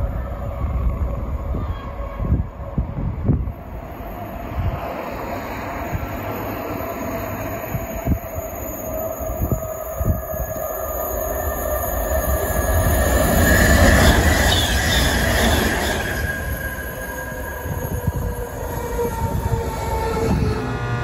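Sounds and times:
train rail hum: 0.0s - 21.0s.

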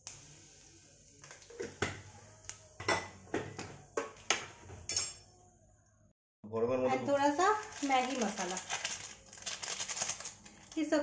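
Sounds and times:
hot fat sizzling: 0.0s - 4.2s, 7.0s - 11.0s.

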